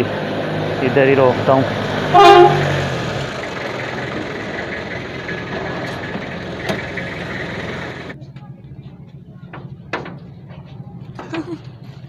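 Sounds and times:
pickup truck engine idling: 0.0s - 8.2s.

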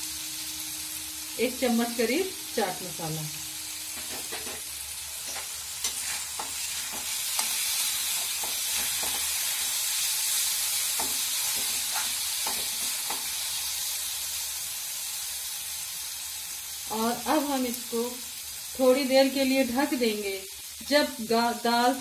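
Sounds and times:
lentils sizzling in pan: 0.0s - 22.0s
spoon scraping and tapping pan: 3.9s - 7.6s.

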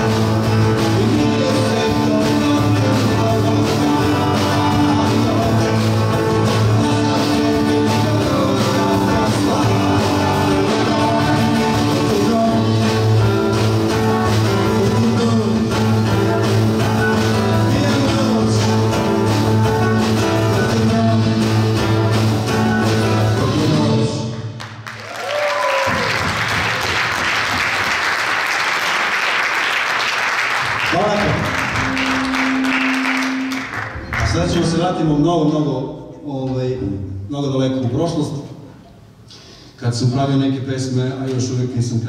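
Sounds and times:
live band playing: 0.0s - 24.6s, 25.8s - 35.3s
audience applause: 24.6s - 34.7s.

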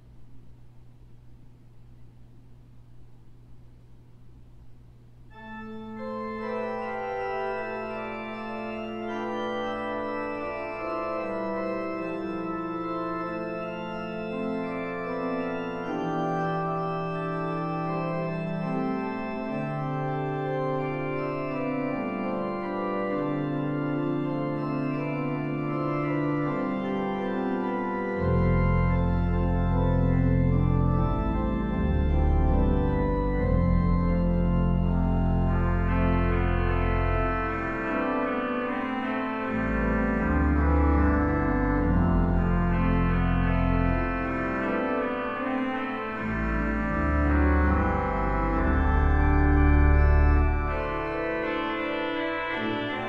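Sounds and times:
low steady hum: 0.0s - 6.7s
pipe organ chords: 5.2s - 53.0s
deep organ pedal bass notes: 5.3s - 53.0s.

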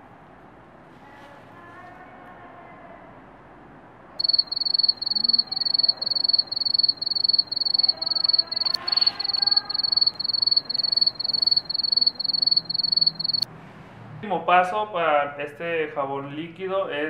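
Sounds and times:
rapid electronic beeping: 4.2s - 13.4s.

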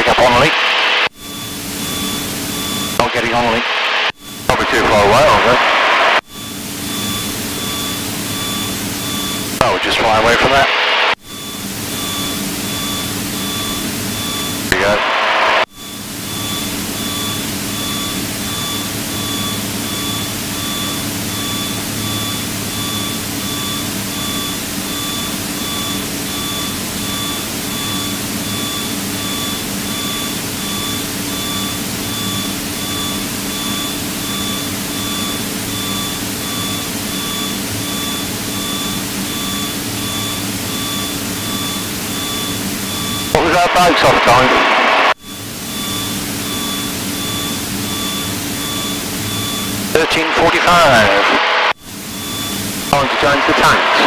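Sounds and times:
airplane engine droning in cabin: 0.0s - 54.0s
high pulsing tone: 11.2s - 51.2s.

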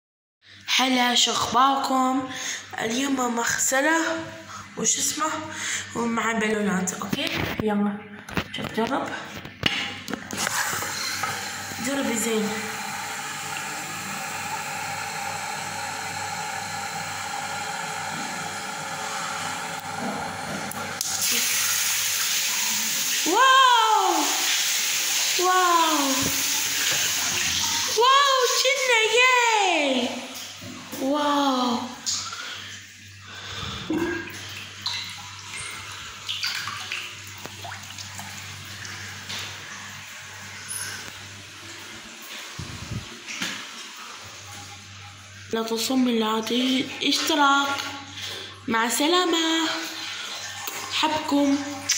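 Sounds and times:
water splashing into sink: 6.3s - 51.9s
tap water running into balloon: 9.6s - 23.3s, 24.2s - 28.0s, 33.8s - 39.6s
water splashing over balloon: 29.8s - 41.2s.

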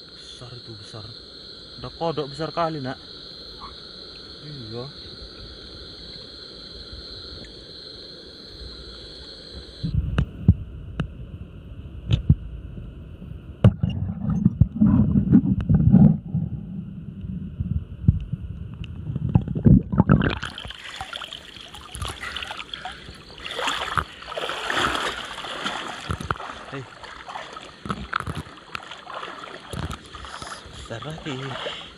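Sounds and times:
frogs calling: 0.0s - 10.0s, 20.1s - 31.9s
night insects calling: 0.0s - 13.6s, 20.0s - 31.9s
muffled underwater rumbling: 9.8s - 20.8s
underwater knocks and thumps: 13.6s - 16.6s, 17.7s - 20.8s, 25.6s - 26.6s, 27.8s - 29.0s, 29.6s - 30.5s
rushing bubbling water: 19.1s - 31.9s.

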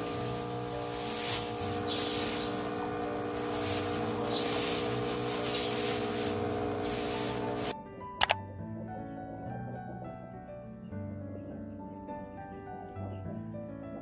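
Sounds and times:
coffee machine pump humming: 0.0s - 7.8s
coffee spraying into mug: 0.0s - 7.8s
hissing spurts: 0.0s - 7.8s.

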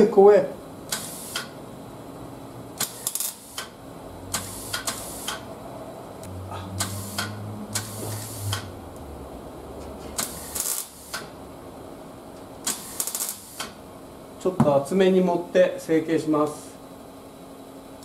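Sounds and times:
welding arc crackle: 0.9s - 1.5s, 2.8s - 5.4s, 6.8s - 8.7s, 10.2s - 11.3s, 12.6s - 13.8s.

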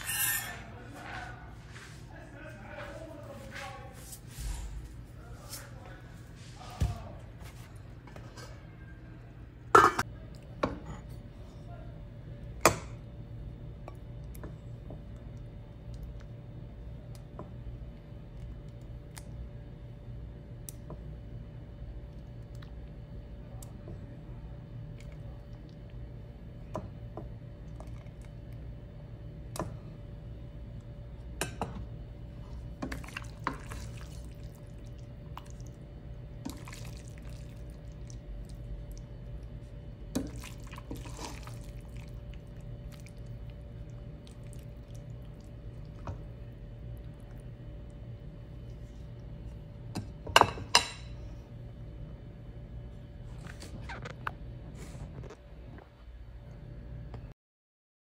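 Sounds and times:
steady low hum: 0.0s - 57.4s
utensils clinking against pot and bowl: 9.8s - 10.0s
wet squelching of pasta: 32.4s - 47.6s.

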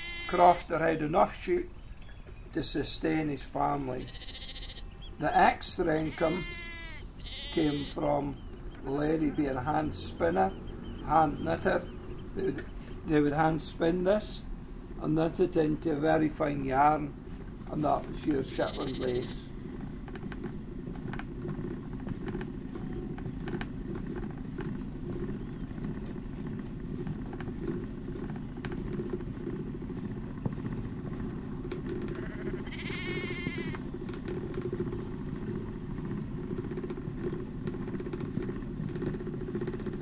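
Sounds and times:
sheep bleat: 0.0s - 0.6s, 4.0s - 4.9s, 5.9s - 8.0s, 18.5s - 19.4s, 32.1s - 33.8s.

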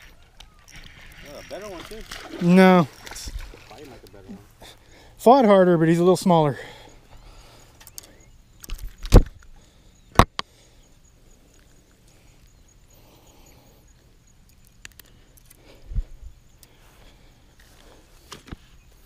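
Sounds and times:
faint clicks: 7.6s - 10.5s, 13.9s - 15.7s.

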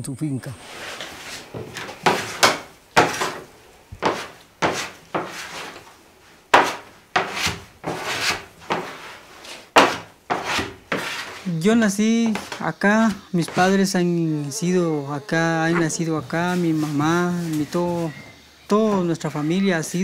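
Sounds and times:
dough thumping on wooden table: 6.5s - 8.9s, 9.8s - 11.1s.

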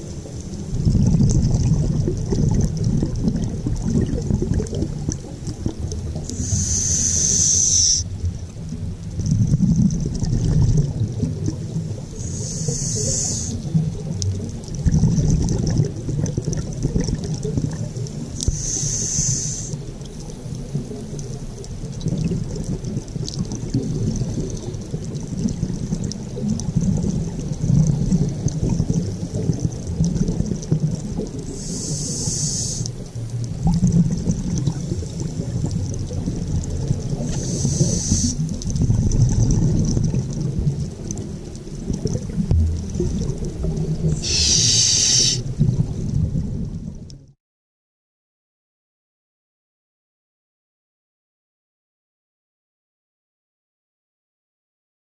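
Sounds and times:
bubbling of exhaled air: 0.0s - 47.3s
regulator hissing inhale: 6.3s - 8.1s, 12.2s - 13.7s, 18.4s - 19.8s, 31.5s - 33.0s, 37.3s - 38.4s, 44.1s - 45.5s.

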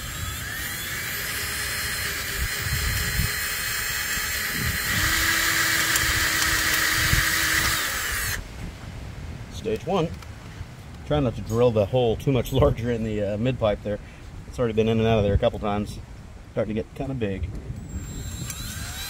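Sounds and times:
cordless drill grinding: 0.0s - 8.4s, 17.8s - 19.0s.

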